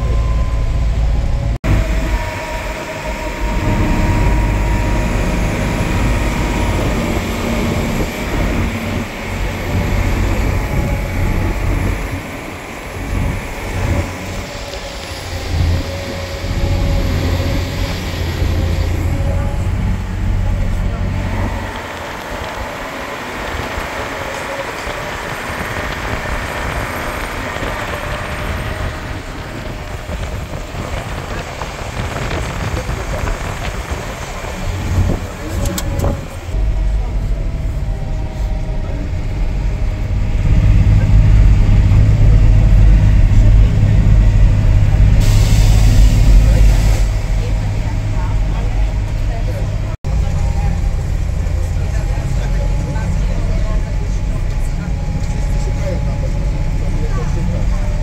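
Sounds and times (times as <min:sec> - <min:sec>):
low engine rumble: 0:00.0 - 0:58.0
tyre and road noise: 0:00.0 - 0:58.0.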